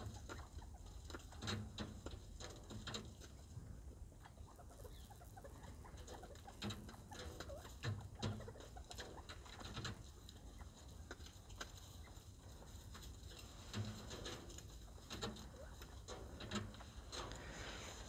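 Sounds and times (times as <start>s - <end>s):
quail cooing softly: 3.7s - 12.8s.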